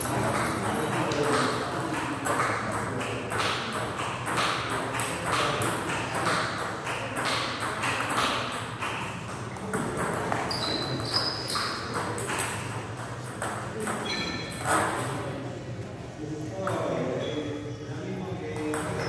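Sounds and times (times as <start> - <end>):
short high squeak: 10.5 - 11.8, 14.0 - 14.6.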